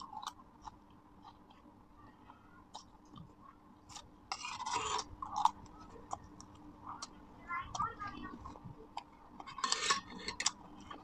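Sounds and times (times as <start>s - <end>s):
chewing lettuce: 0.0s - 11.0s
fork scraping steel plate: 3.9s - 5.5s, 9.4s - 10.6s.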